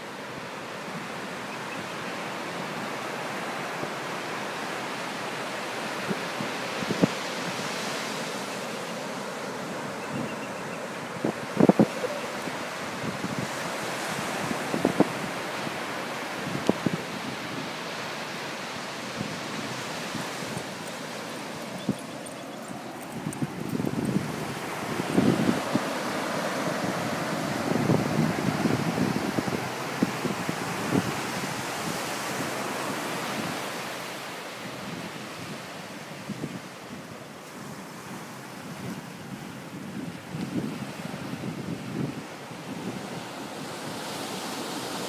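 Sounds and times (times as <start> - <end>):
ocean surf breaking: 2.2 - 36.0
wind buffeting microphone: 19.1 - 32.4.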